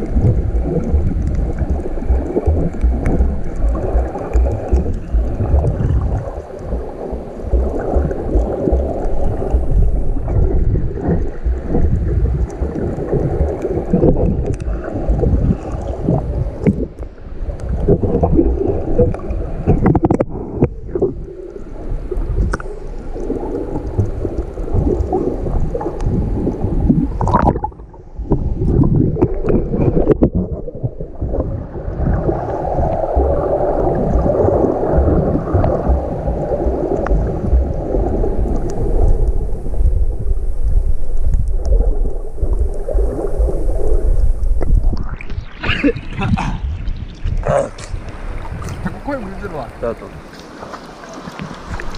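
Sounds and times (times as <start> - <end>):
clicks and splashes: 0.0 - 21.2
underwater churning and gurgling: 0.0 - 51.9.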